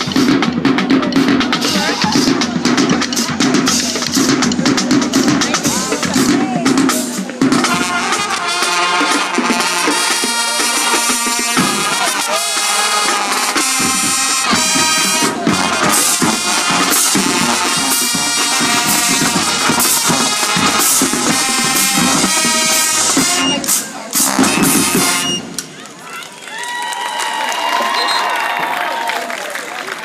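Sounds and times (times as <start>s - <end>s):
marching band drums: 0.0s - 25.8s
brass section holding chords: 7.5s - 25.5s.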